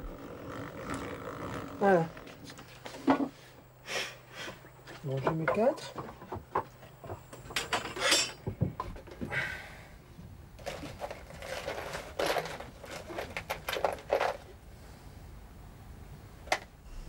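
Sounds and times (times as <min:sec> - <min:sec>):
tools and wood clattering on workbench: 0:02.4 - 0:03.4, 0:04.9 - 0:09.2, 0:10.6 - 0:14.5.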